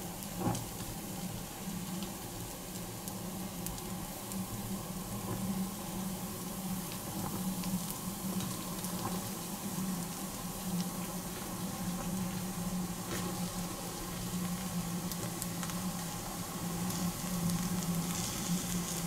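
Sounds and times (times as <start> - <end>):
flame hissing: 0.0 - 19.0
small crackles: 10.0 - 19.0.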